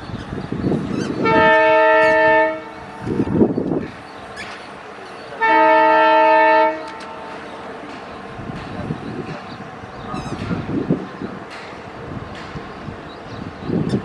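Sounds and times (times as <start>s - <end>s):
locomotive horn blasts: 1.2s - 2.9s, 5.4s - 7.3s.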